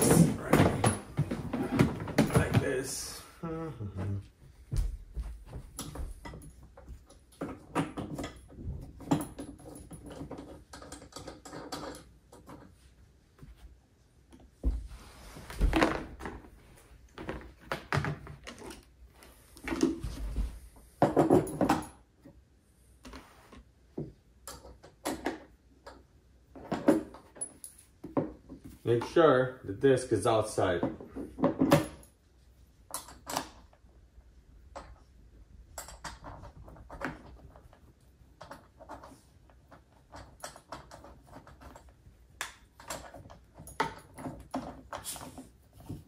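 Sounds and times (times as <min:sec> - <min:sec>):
plastic parts clicking and knocking: 0:05.7 - 0:12.8, 0:17.2 - 0:19.0, 0:24.0 - 0:29.2, 0:34.6 - 0:45.0.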